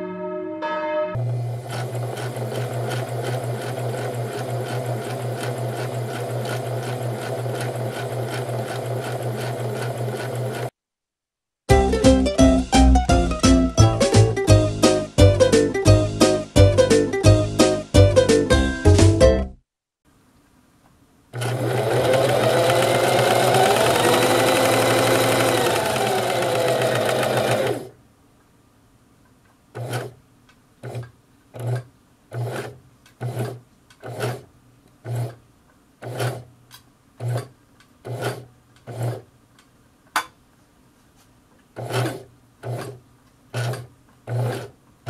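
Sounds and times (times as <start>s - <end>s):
sewing machine stitching: 1.2s - 10.8s, 21.4s - 28.0s, 29.7s - 30.2s, 30.8s - 35.4s, 36.0s - 36.5s, 37.2s - 39.3s, 41.8s - 44.8s.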